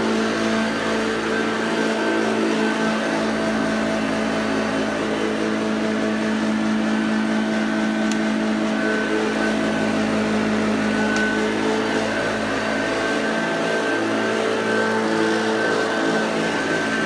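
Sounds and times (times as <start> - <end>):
vacuum cleaner running on carpet: 0.0 - 17.0.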